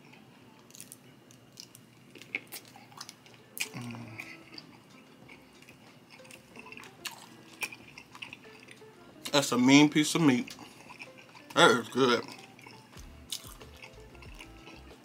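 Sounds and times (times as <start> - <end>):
person chewing sausage: 0.0 - 8.9, 10.4 - 15.0.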